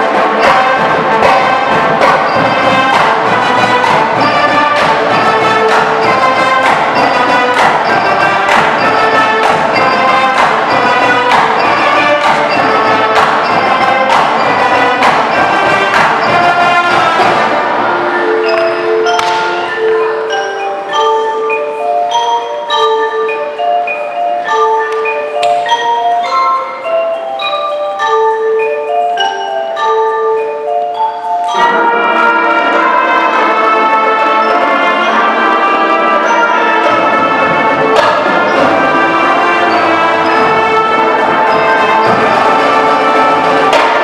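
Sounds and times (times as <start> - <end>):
marching band with brass: 0.0 - 20.6, 31.4 - 44.0
marimba melody: 0.0 - 44.0.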